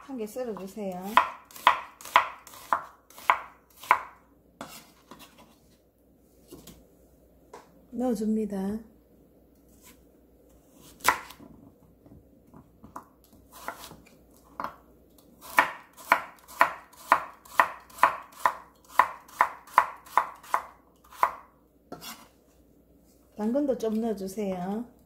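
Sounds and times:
knife slicing on wooden board: 1.6 - 5.6, 13.5 - 14.1, 21.2 - 22.3.

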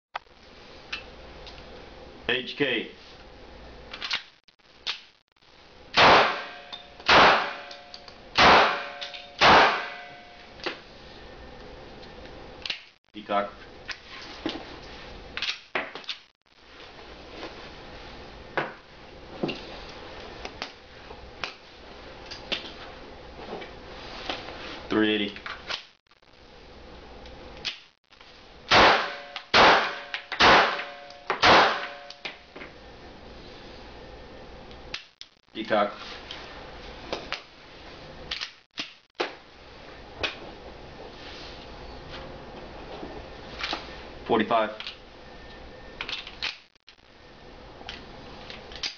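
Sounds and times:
gunshots with ringing tail: 5.9 - 7.7, 8.4 - 10.3, 28.7 - 32.1.

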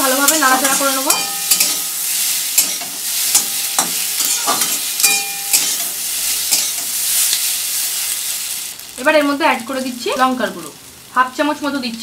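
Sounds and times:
potatoes sizzling in hot oil: 0.0 - 12.0
metal spatula scraping a pan: 0.1 - 8.1.

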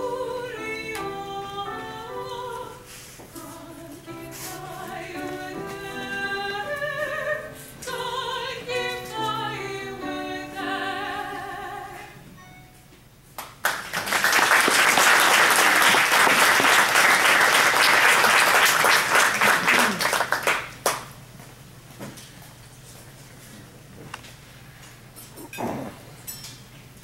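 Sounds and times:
woman singing: 0.0 - 12.2
audience applause: 13.6 - 21.1.

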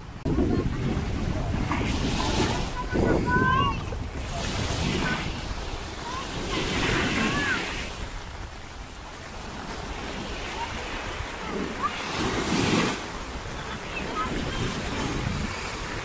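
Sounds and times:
small waves breaking on shore: 0.0 - 16.0
wind rumbling on microphone: 0.0 - 16.0.

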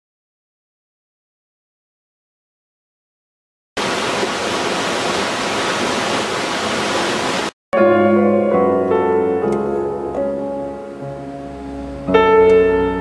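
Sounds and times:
waterfall rushing: 3.8 - 7.5
piano music: 7.7 - 13.0.

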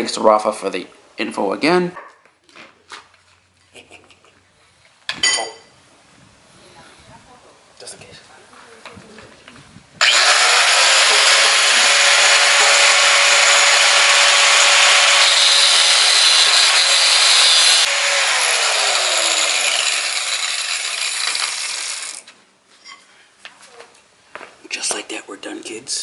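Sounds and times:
angle grinder cutting steel: 10.0 - 22.3.

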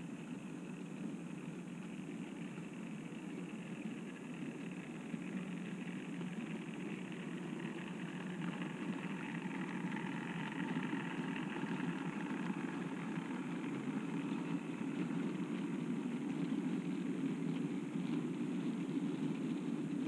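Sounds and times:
model train running on track: 0.0 - 20.0.

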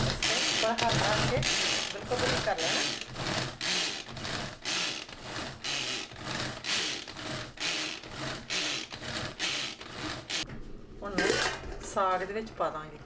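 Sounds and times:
manual food chopper whirring: 0.0 - 10.5.

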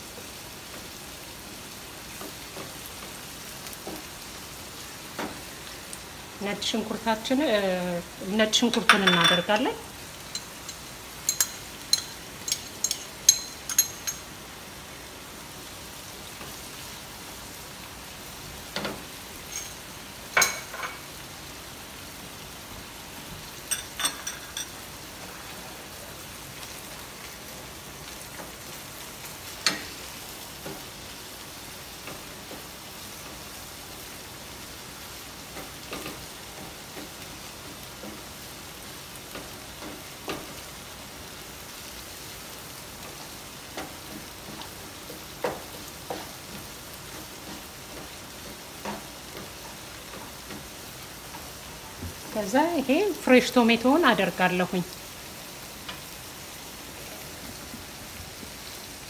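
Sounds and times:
garlic sizzling in oil: 0.0 - 59.0
metal utensil clinking on pan: 8.7 - 9.6, 10.3 - 14.3, 19.4 - 19.8, 20.4 - 21.0, 23.7 - 24.8.

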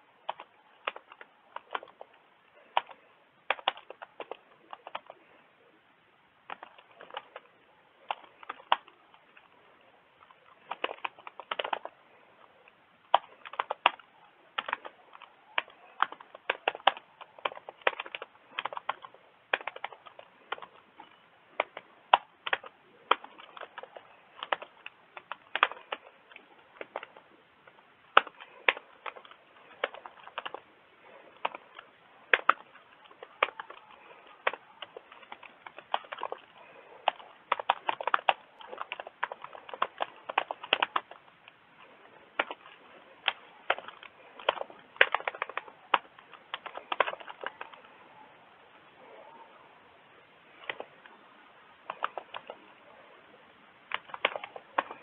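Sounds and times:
keyboard typing clicks: 0.2 - 5.2, 10.2 - 12.0, 12.7 - 47.9, 51.8 - 52.7, 53.9 - 55.0.

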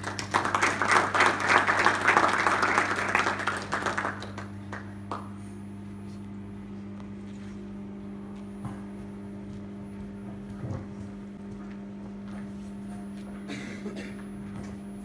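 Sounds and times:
audience applauding: 0.0 - 5.3
steady low hum: 0.0 - 15.0.

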